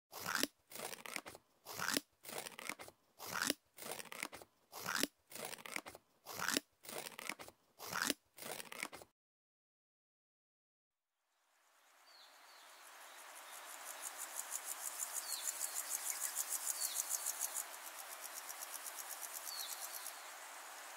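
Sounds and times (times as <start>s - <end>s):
scissors snipping paper: 0.1s - 9.1s.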